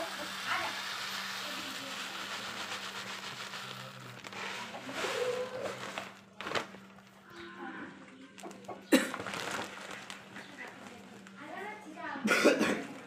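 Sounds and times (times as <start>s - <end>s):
granules pouring onto cloth: 0.0s - 7.1s, 8.4s - 11.5s.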